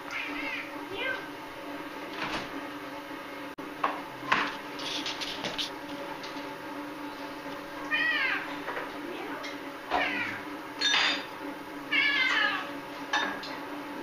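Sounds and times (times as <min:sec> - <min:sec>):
cat meowing: 0:00.1 - 0:01.2, 0:07.9 - 0:08.5, 0:09.9 - 0:10.4, 0:11.9 - 0:12.7.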